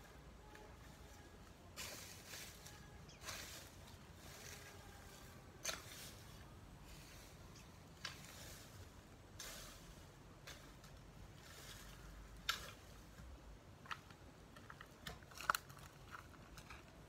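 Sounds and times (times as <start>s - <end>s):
garden tool scraping vegetation: 0.0s - 13.4s.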